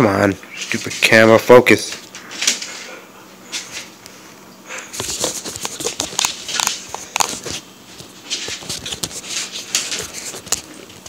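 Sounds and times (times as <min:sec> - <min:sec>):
fingers rubbing and tapping camera: 0:05.0 - 0:07.6.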